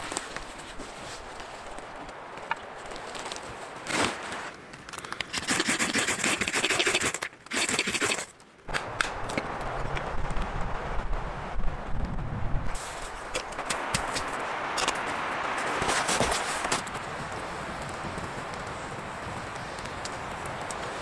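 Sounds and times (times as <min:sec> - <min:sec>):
campfire crackling: 0:00.0 - 0:21.0
knife scraping wood: 0:05.2 - 0:08.3.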